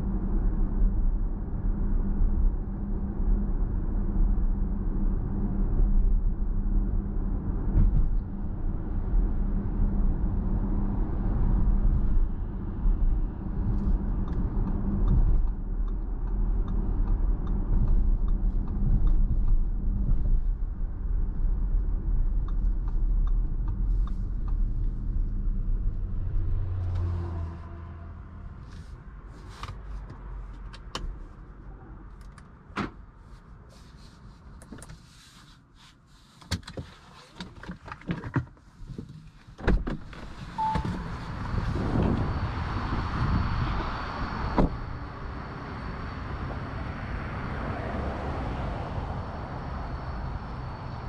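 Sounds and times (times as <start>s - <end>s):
car road and drivetrain rumble: 0.0s - 51.0s
steady outdoor noise: 0.0s - 51.0s
short beep: 40.6s - 41.0s.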